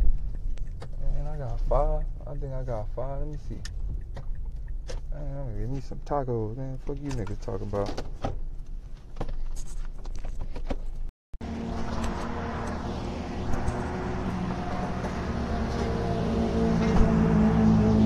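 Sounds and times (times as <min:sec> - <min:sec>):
vehicle engine humming: 0:00.0 - 0:07.6, 0:11.4 - 0:18.0.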